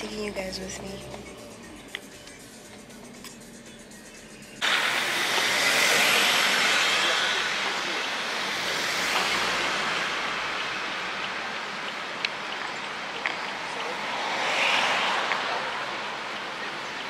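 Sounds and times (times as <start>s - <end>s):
pickup truck passing: 4.6s - 17.0s.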